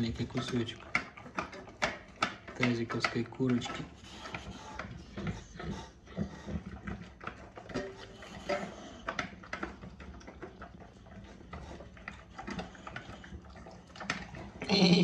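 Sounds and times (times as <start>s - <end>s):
clicks against metal bowl: 0.0s - 5.3s
dog chewing and slurping: 0.0s - 15.0s.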